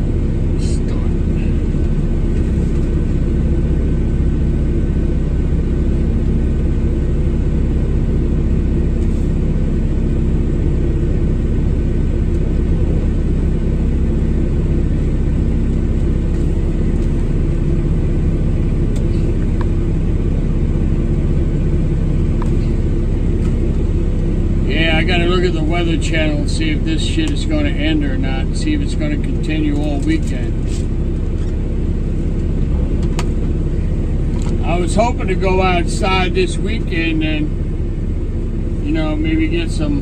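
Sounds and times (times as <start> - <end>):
truck engine idling: 0.0 - 40.0.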